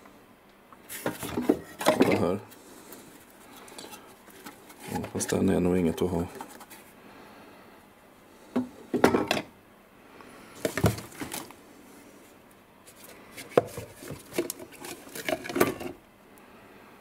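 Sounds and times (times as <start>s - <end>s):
cans and plastic clattering in box: 0.9s - 2.4s, 10.6s - 11.5s, 13.4s - 16.0s.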